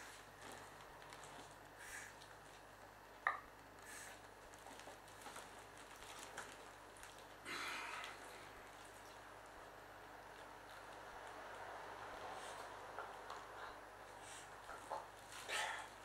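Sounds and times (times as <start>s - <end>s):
plastic crinkling: 0.2s - 2.8s, 3.8s - 9.3s.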